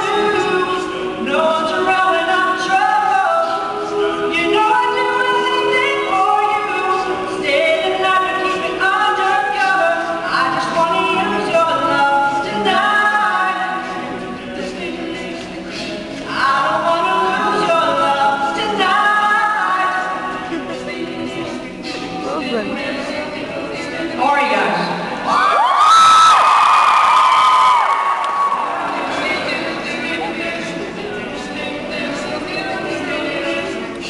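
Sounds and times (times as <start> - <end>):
male group singing a cappella: 0.0 - 25.5, 28.4 - 34.0.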